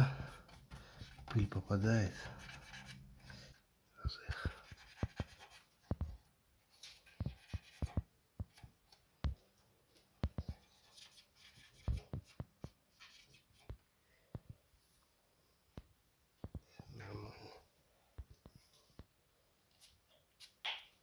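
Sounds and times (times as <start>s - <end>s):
cotton swab scraping metal: 0.2s - 3.5s.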